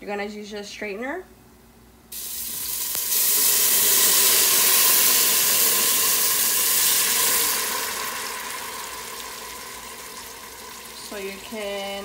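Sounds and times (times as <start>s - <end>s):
sauce sizzling in hot oil: 2.1s - 12.0s.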